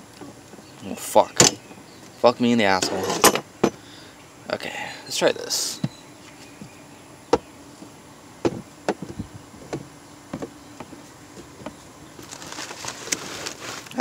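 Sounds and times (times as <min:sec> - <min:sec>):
faint steady buzz: 0:00.0 - 0:14.0
light irregular knocks and taps: 0:08.4 - 0:11.8.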